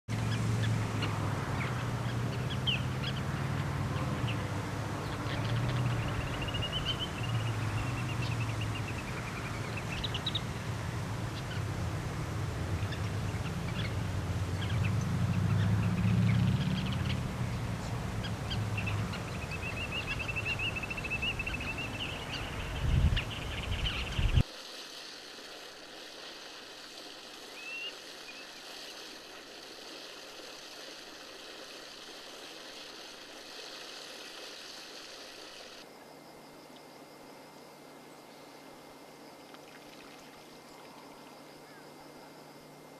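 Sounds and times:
shorebirds twittering: 0.1 - 24.4.

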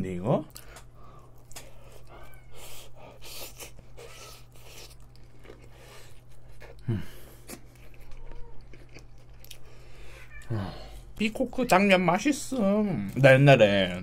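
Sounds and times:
faint low hum: 0.0 - 14.0
close chewing with wet mouth clicks: 7.4 - 9.8
person humming: 10.4 - 11.0.

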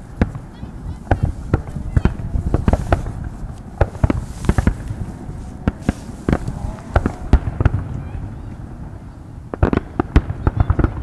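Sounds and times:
firework shells bursting: 0.0 - 8.0.

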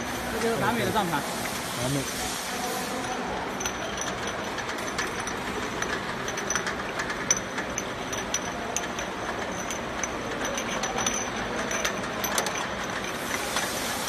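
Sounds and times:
glass bottles clinking: 2.9 - 14.0.

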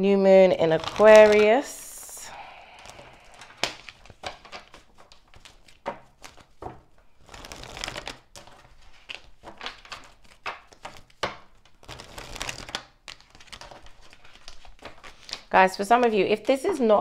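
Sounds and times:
cards being shuffled: 0.6 - 1.8, 2.8 - 16.9
cards tapping together: 2.9 - 15.5.

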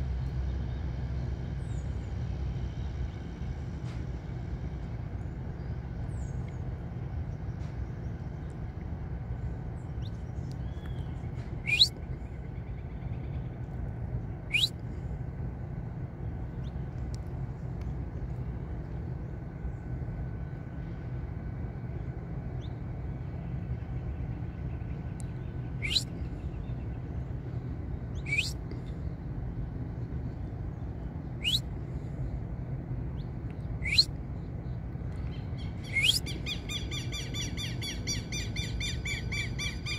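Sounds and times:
steady low rumble: 0.0 - 39.9
bird chirps: 9.9 - 13.5, 14.5 - 14.7, 24.8 - 27.0, 28.1 - 28.6, 31.3 - 31.7, 33.2 - 34.1, 35.2 - 39.9.

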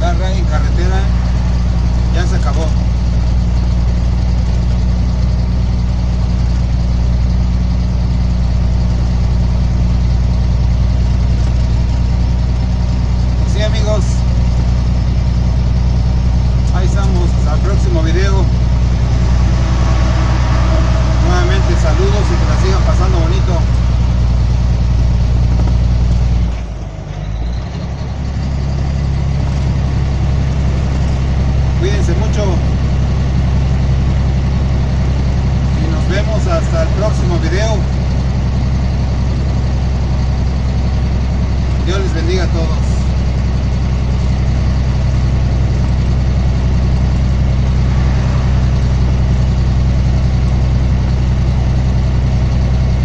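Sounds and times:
tyre and road noise: 0.0 - 5.5, 14.5 - 36.8, 44.2 - 53.0
truck engine droning: 0.0 - 53.0.

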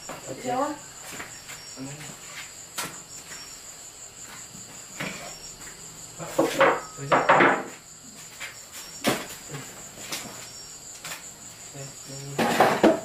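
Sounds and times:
insects chirping: 0.0 - 13.0
loud clattering knocks: 6.4 - 7.7.

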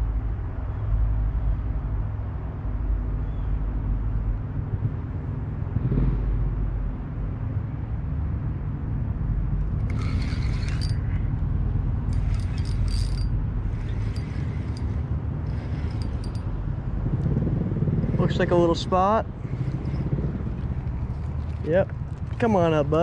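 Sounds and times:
boat motor humming: 9.6 - 11.4, 12.0 - 23.0
fishing reel whirring: 9.7 - 11.2, 12.1 - 16.5, 18.0 - 22.5.

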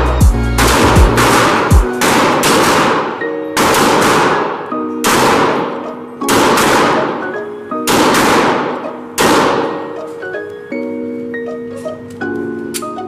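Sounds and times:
background music: 0.0 - 13.0
pistol shots echoing: 0.6 - 10.2.

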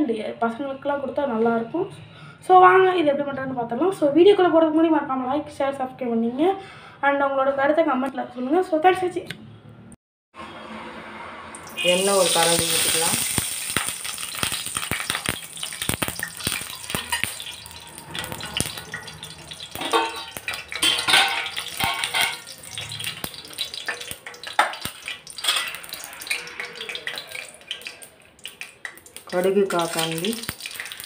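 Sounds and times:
light oil sizzle: 11.6 - 31.0
oil crackling and popping: 11.6 - 31.0.

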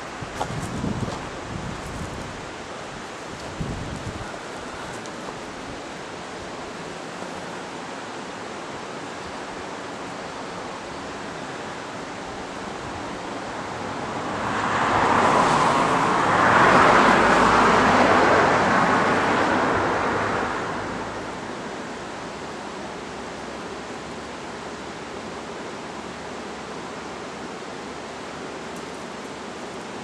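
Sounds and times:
steady rushing background noise: 0.0 - 30.0
vehicle passing on road: 13.6 - 21.4.

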